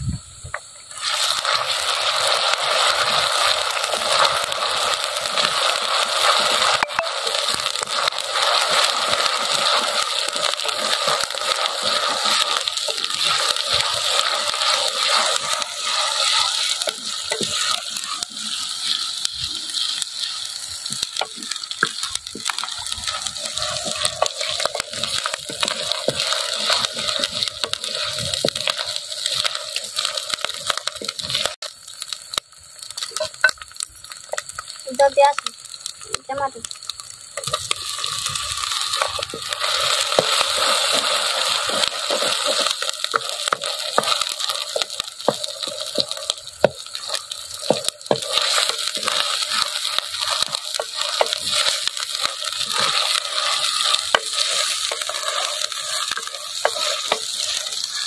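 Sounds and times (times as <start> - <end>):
onions sizzling in hot oil: 0.0 - 58.0
wooden spatula scraping: 19.7 - 31.5, 39.0 - 58.0.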